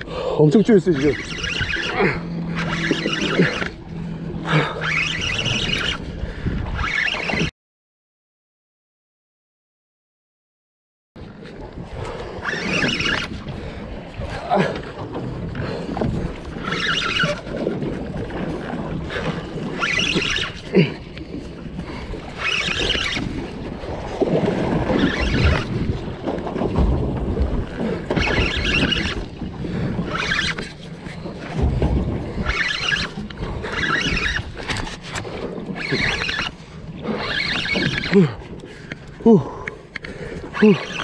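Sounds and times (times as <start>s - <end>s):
water rumble: 0.0s - 7.5s, 11.2s - 41.0s
wind: 0.0s - 7.5s, 11.2s - 41.0s
spinning reel cranking: 0.8s - 3.8s, 4.5s - 6.0s, 6.7s - 7.5s, 12.4s - 13.3s, 16.6s - 17.4s, 19.1s - 20.9s, 22.4s - 23.4s, 24.9s - 25.8s, 28.2s - 29.3s, 30.1s - 30.8s, 32.4s - 35.2s, 35.8s - 36.5s, 37.2s - 38.3s.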